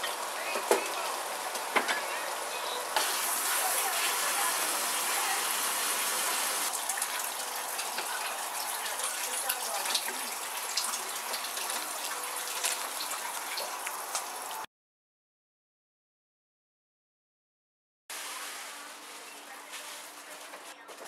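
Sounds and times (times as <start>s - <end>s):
steady hiss: 0.0s - 8.1s.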